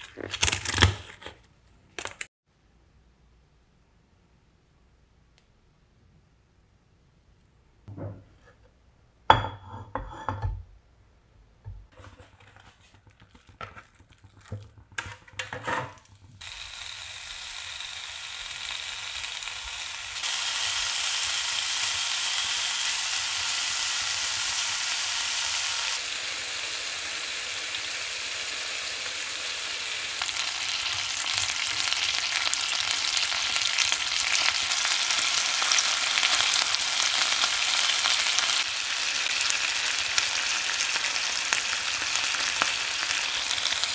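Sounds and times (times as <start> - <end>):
chicken sizzling in frying pan: 13.2 - 43.9.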